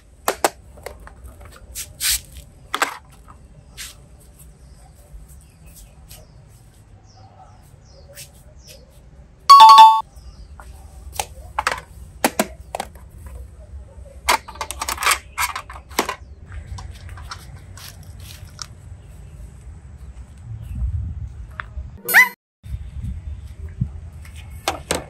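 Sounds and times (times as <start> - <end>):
two-note electronic chime: 9.5 - 10.0.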